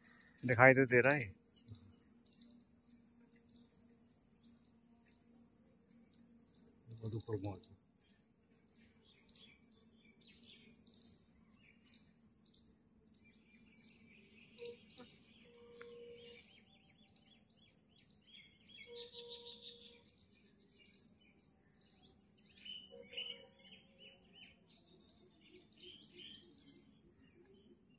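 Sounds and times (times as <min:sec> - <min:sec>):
high insect hum: 0:00.0 - 0:27.9
bird chirps: 0:08.8 - 0:27.7
faint held tone: 0:14.6 - 0:16.6.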